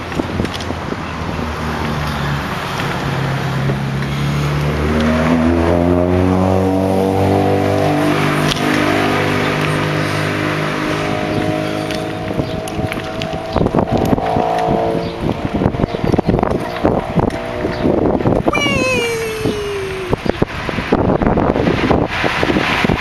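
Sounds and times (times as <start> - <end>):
wind and road noise: 0.0 - 23.0
vehicle engine accelerating: 1.3 - 18.0.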